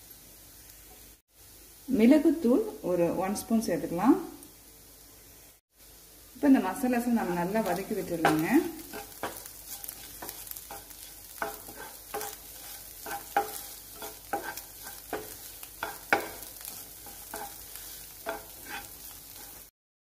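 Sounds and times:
food sizzling in a pan: 0.0 - 19.7
wooden spatula scraping a pan: 7.2 - 19.7.

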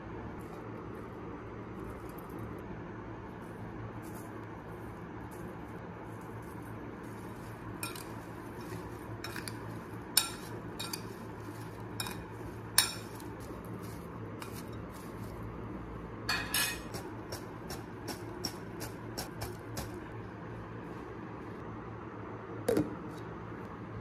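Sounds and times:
metal spoon clinking on glass bowl: 7.8 - 8.1, 10.2 - 11.2, 12.0 - 13.2, 16.3 - 17.0.

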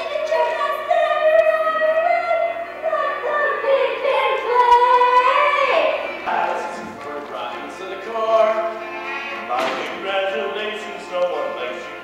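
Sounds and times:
girl singing: 0.0 - 6.0.

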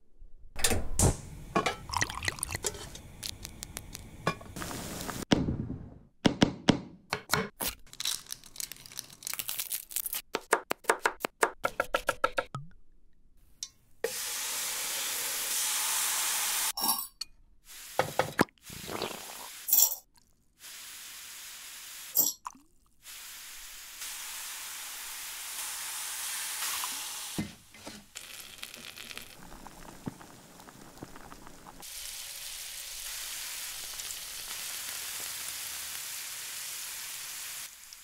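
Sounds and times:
match lighting: 2.7 - 5.2
food sizzling in pan: 14.1 - 16.8, 17.7 - 19.7, 20.6 - 22.2, 23.0 - 38.0.

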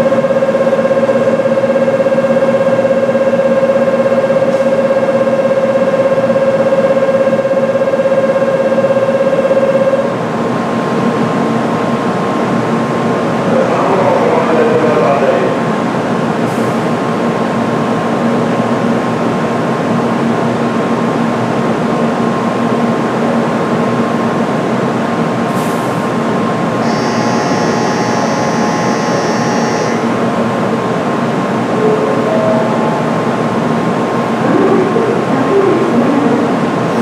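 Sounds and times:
train equipment humming: 23.4 - 37.0
faint whine: 26.8 - 30.2
high electronic tone: 26.8 - 30.2.

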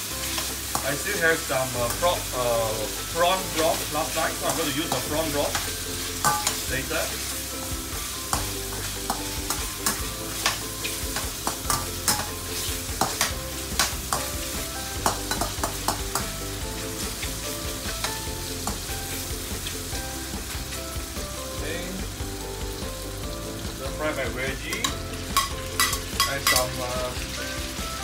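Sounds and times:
food sizzling in oil: 0.0 - 28.0
metal ladle scraping a wok: 4.4 - 7.6, 8.2 - 14.3.

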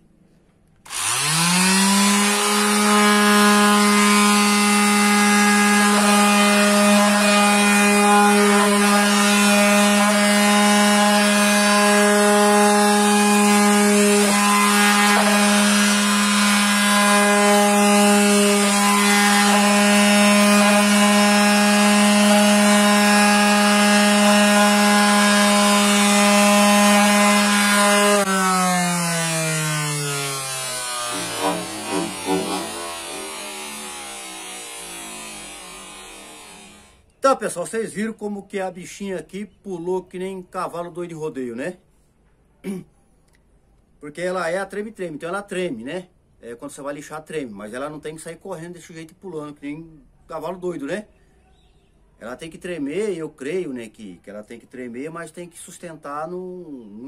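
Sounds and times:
sander hopping on table: 0.9 - 36.9
orbital sander motor hum: 0.9 - 37.0.

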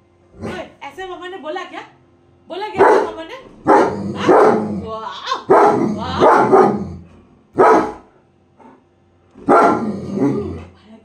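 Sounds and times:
dog barking: 2.8 - 4.7, 5.4 - 6.8, 7.6 - 8.1, 9.4 - 9.9.

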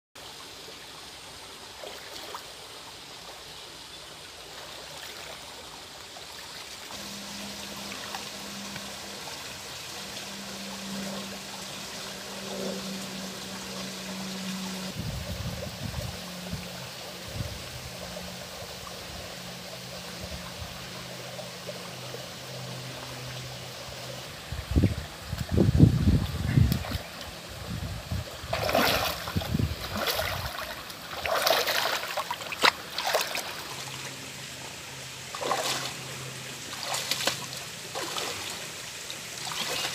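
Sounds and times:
stream trickling over rocks: 0.2 - 39.9
faint low hum: 6.9 - 38.6.

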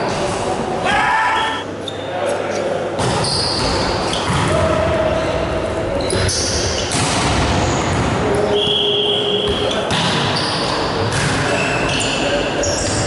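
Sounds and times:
players calling and shouting: 0.7 - 2.1
gym court noise: 2.8 - 13.0.

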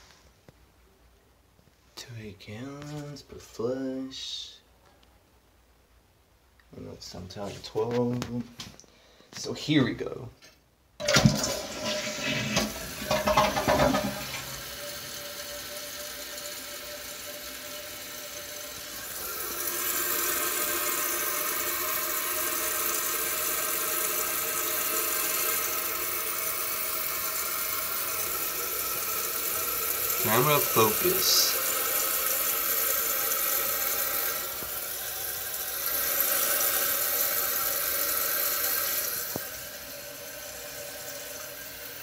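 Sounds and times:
hiss of toilet tank refilling: 11.0 - 42.0
toilet flushing water rush: 11.0 - 42.0.

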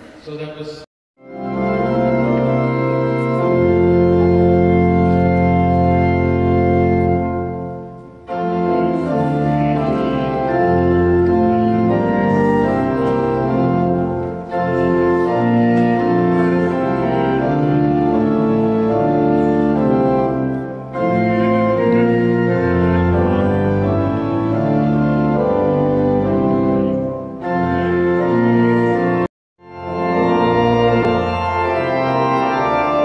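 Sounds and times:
pipe organ playing slow chords: 1.2 - 33.0.

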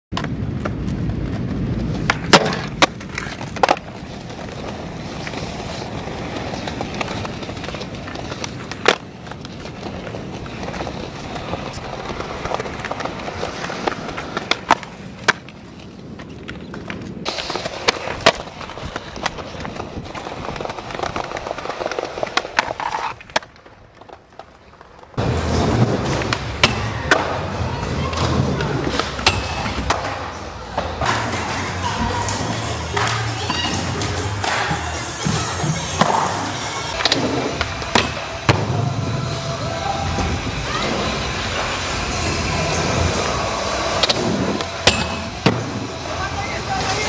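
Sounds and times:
skateboard clacking on ground: 0.1 - 25.2
skateboard rolling on concrete: 0.1 - 47.0.

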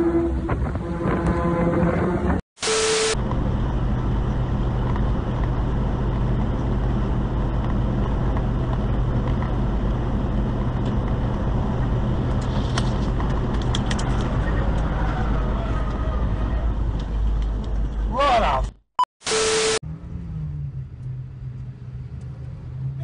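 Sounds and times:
road noise rushing: 0.0 - 18.2
truck engine drone: 1.0 - 18.0, 19.3 - 23.0.

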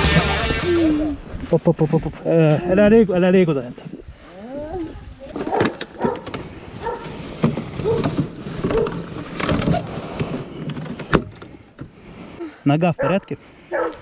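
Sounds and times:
short voice sounds: 0.5 - 1.2.

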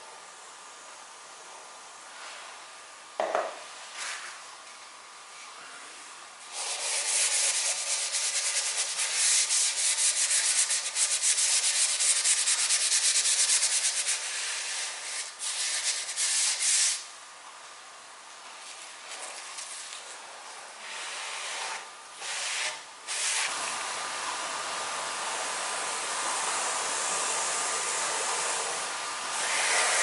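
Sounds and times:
bristle brush scrubbing wood: 6.6 - 14.4.

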